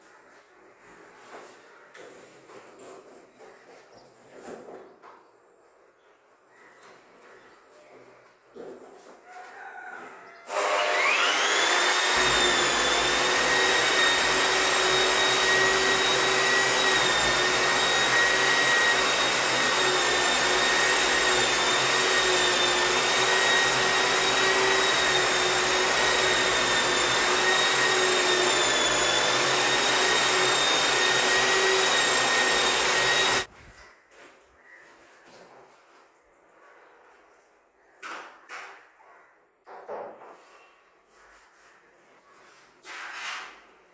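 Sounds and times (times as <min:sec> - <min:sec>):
sanding machine motor whine: 0:10.5 - 0:33.5.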